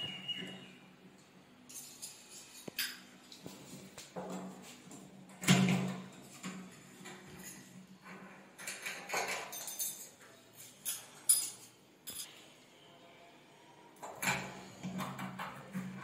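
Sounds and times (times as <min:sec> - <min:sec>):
metal door lock parts clinking: 0:08.6 - 0:12.3.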